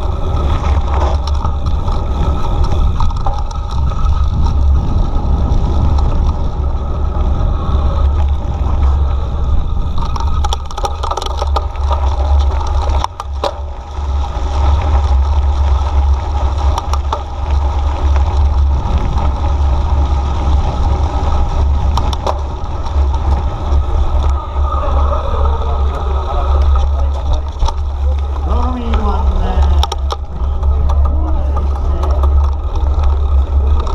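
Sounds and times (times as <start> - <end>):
tyres on gravel: 0.0 - 33.9
wind rushing over microphone: 0.0 - 33.9
bike rattling knocks: 9.8 - 24.4, 29.5 - 33.9.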